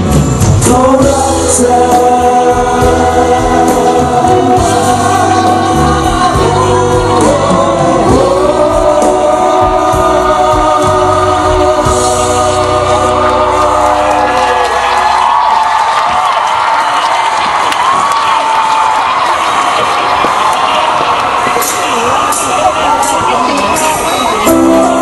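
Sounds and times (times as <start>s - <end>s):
pop backing track: 0.0s - 16.4s, 21.6s - 25.0s
man singing into a microphone: 0.4s - 14.5s.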